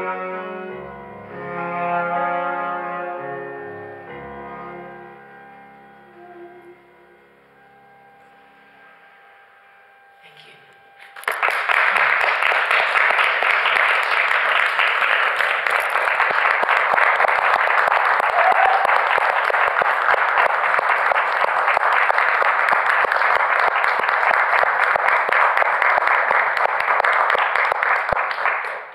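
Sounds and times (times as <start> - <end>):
audience applauding: 11.0 - 28.9.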